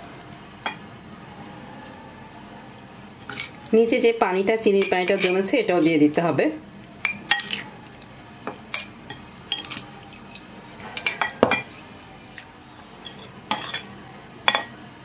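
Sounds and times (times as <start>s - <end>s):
metal spoon clinking on glass: 13.0s - 13.9s.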